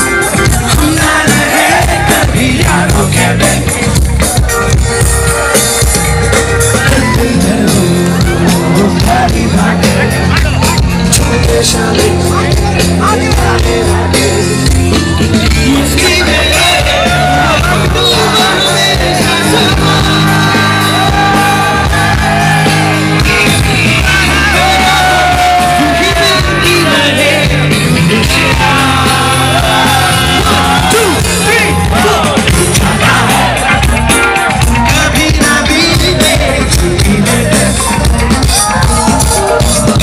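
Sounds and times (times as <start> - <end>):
live rock band with singing: 0.0 - 40.0
people singing along and shouting: 0.0 - 40.0.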